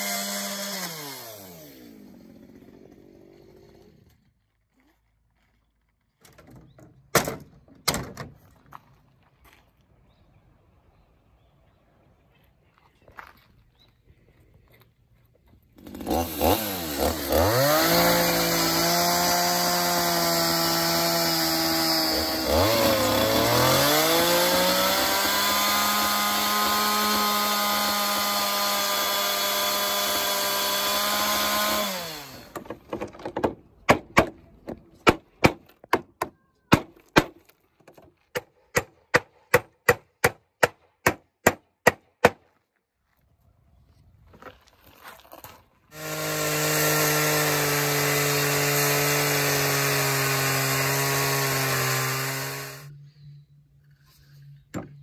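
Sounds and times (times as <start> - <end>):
chainsaw cutting wood: 0.0 - 4.3, 15.8 - 34.3, 45.3 - 52.9
hammer driving nails into wood: 32.5 - 37.4, 38.3 - 42.4.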